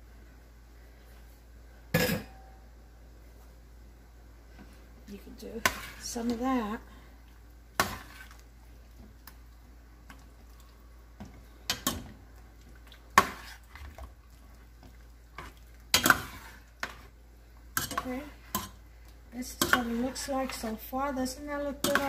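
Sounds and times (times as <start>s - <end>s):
metal spoon stirring food in pot: 5.4s - 6.8s, 7.7s - 9.4s, 10.0s - 22.0s.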